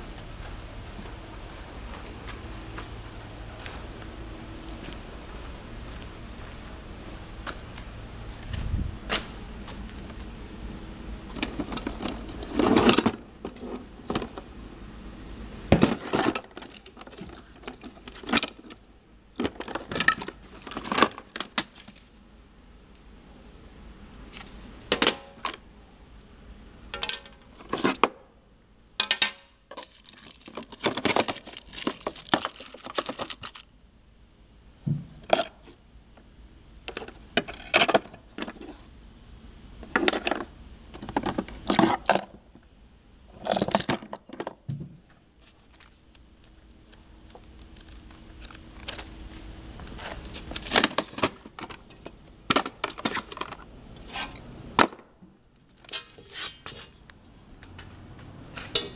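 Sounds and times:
metal tools clinking in plastic case: 15.8s - 18.8s, 19.4s - 22.0s, 29.0s - 33.6s, 50.2s - 54.9s.

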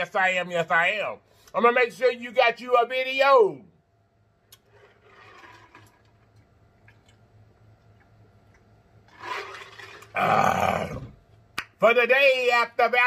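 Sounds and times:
man swallowing: 10.0s - 11.2s.

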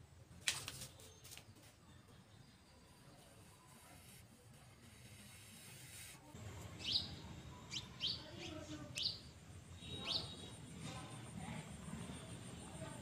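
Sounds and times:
small bird chirping: 4.8s - 10.5s.

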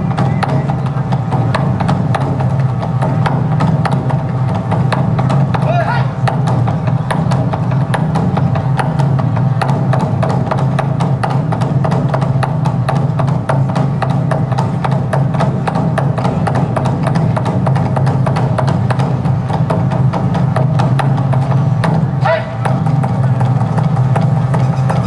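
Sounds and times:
barrel drum beaten with sticks: 0.0s - 25.0s.

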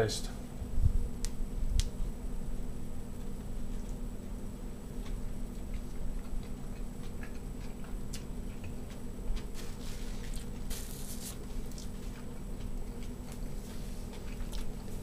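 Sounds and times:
steady low hum: 0.0s - 15.0s
person chewing crunchy food: 3.2s - 15.0s.

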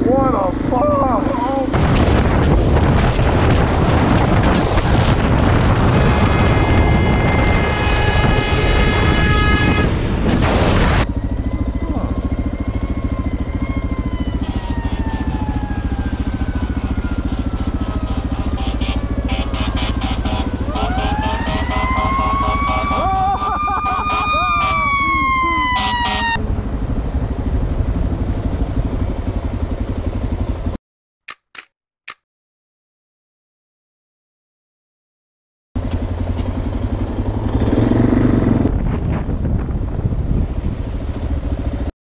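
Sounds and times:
motorcycle riding at speed: 0.0s - 32.2s, 35.8s - 41.9s
wind rush over microphone: 1.7s - 11.1s, 26.4s - 29.5s, 37.5s - 41.9s
motorcycle idling: 11.1s - 25.7s, 26.4s - 30.8s, 35.8s - 37.5s.

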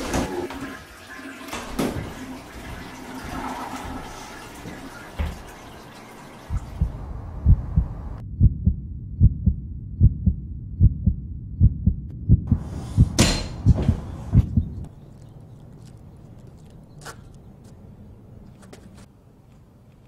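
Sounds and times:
heartbeat thumps: 6.5s - 15.0s.

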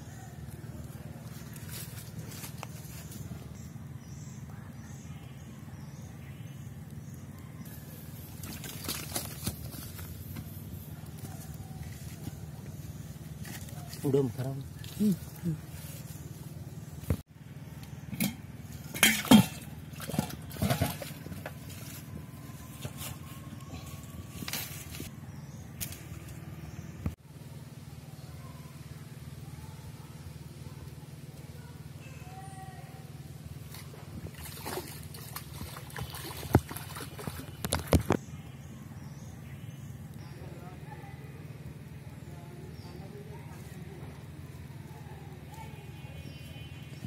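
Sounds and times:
fish splashing in water: 8.3s - 9.7s, 33.7s - 38.1s
metal pot and lid clattering: 18.1s - 21.0s.

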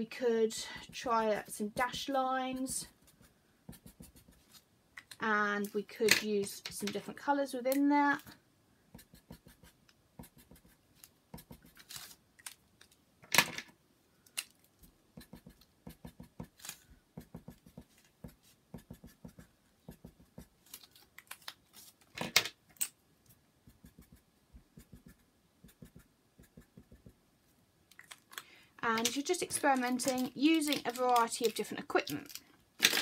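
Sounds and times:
marker tapping on paper: 15.2s - 16.5s, 17.2s - 20.5s, 23.7s - 27.2s.

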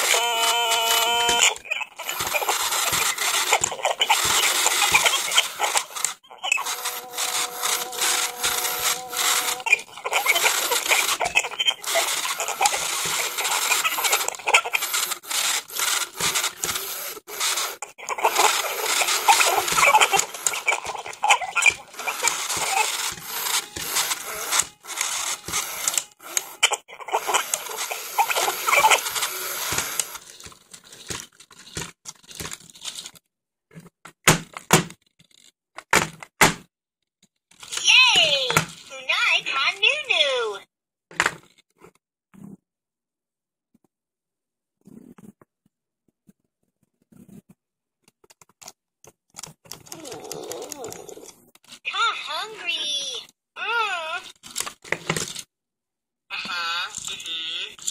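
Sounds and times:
toy crackling with warbling squeals: 0.0s - 31.1s, 37.6s - 40.6s, 56.4s - 57.9s
scattered clicks and bursts: 0.0s - 33.2s.

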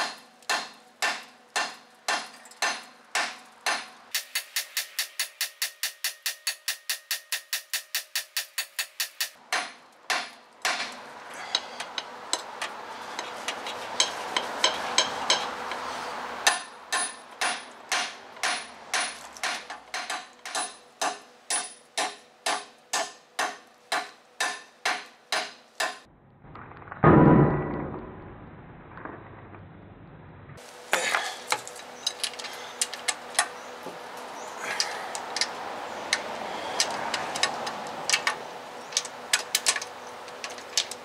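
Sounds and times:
hammer striking metal wrench: 0.0s - 12.7s, 14.0s - 15.8s, 16.4s - 26.0s.

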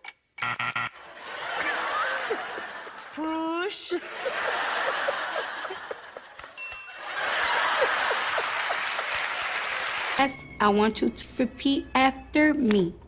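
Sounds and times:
audience laughing and applauding: 1.0s - 10.2s
bell ding: 6.6s - 7.2s.

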